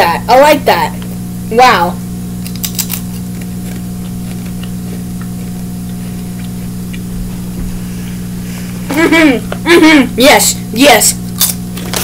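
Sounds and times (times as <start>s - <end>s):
electrical hum with hiss: 0.0s - 12.0s
tortilla chip crunching: 2.4s - 7.1s, 11.3s - 12.0s.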